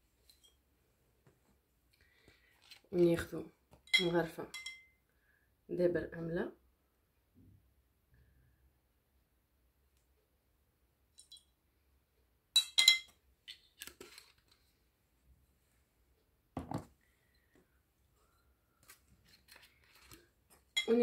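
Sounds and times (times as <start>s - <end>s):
metal spoon clinking ceramic bowl: 3.9s - 5.0s, 12.6s - 13.2s.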